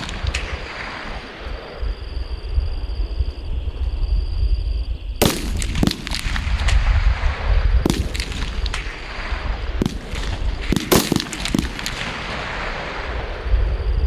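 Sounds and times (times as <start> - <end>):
rifle shots: 0.0 - 1.4, 5.2 - 7.2, 7.8 - 13.2.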